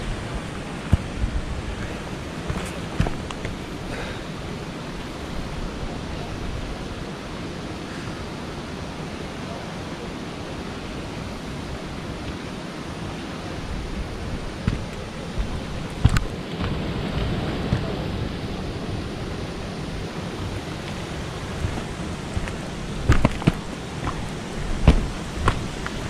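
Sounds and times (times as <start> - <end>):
rushing outdoor noise: 0.0 - 26.0.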